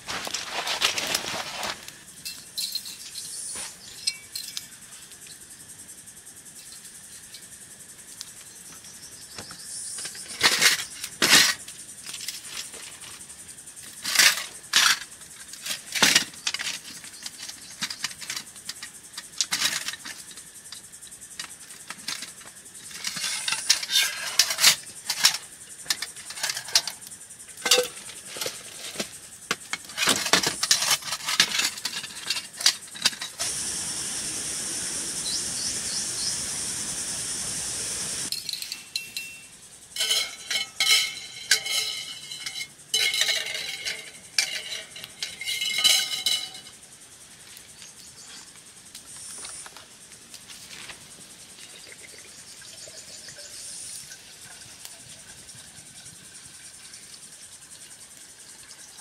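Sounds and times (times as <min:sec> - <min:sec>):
steady high hiss: 0:00.0 - 0:59.0
faint chirps: 0:33.5 - 0:39.9, 0:51.6 - 0:59.0.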